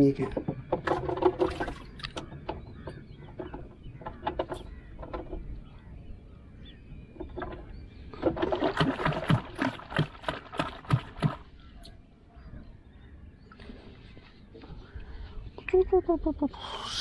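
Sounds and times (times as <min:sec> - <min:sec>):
knocks in a wooden canoe: 0:00.2 - 0:05.9, 0:07.1 - 0:11.6.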